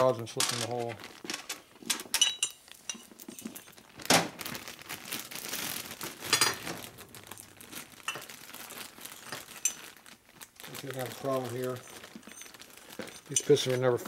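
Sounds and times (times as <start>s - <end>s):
metal parts clinking: 0.0s - 3.8s, 11.2s - 14.0s
rustling: 0.0s - 14.0s.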